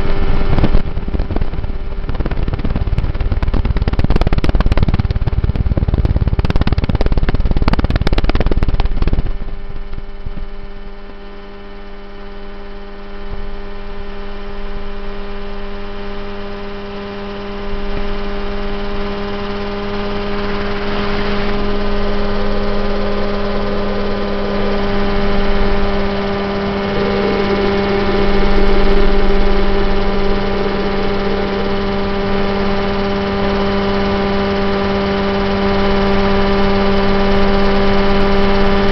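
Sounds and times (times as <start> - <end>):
helicopter engine and rotor drone: 0.0 - 38.9
rough noisy rush: 16.3 - 38.9.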